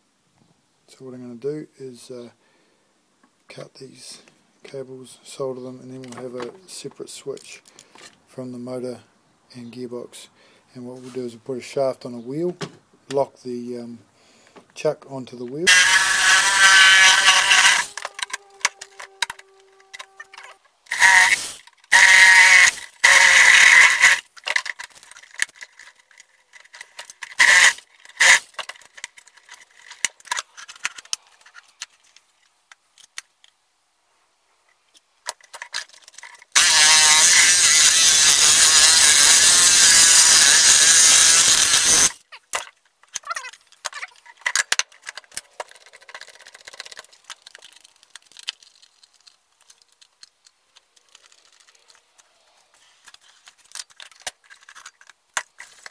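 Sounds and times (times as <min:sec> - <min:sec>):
power tool running: 0:15.7 - 0:20.2, 0:20.9 - 0:24.2, 0:27.4 - 0:28.5, 0:36.6 - 0:42.2.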